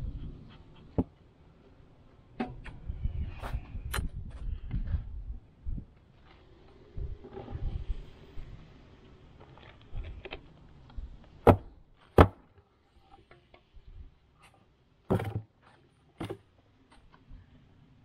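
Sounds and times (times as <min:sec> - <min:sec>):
beehive cover knocks and thuds: 0:11.4 - 0:12.4, 0:15.1 - 0:15.5.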